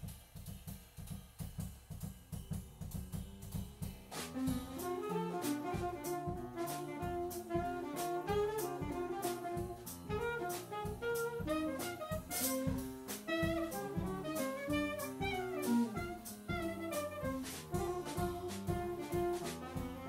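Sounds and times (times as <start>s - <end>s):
drum kit cymbals: 0.0s - 20.0s
upright piano: 3.9s - 20.0s
alto saxophone melody: 4.3s - 20.0s.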